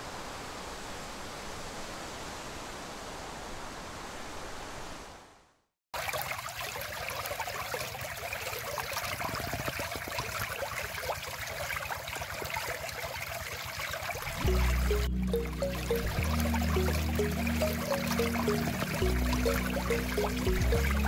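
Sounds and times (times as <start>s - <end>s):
stream babbling over stones: 6.0s - 21.0s
background music: 14.3s - 21.0s.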